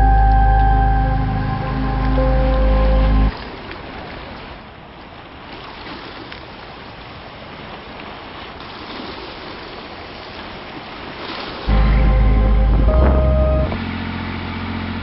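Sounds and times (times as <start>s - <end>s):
low rumble: 0.0s - 3.3s, 11.7s - 15.0s.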